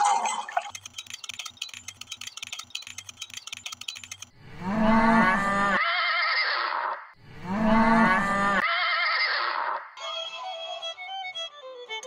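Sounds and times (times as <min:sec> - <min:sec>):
horse whinnying: 0:05.7 - 0:07.0, 0:08.6 - 0:09.8.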